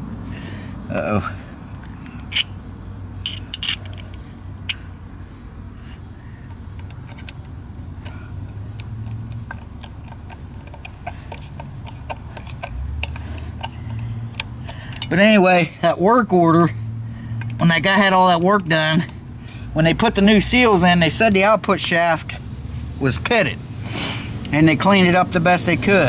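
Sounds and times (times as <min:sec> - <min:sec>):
screwdriver metallic clicks: 0:02.0 - 0:02.5, 0:03.2 - 0:04.8, 0:06.8 - 0:15.2.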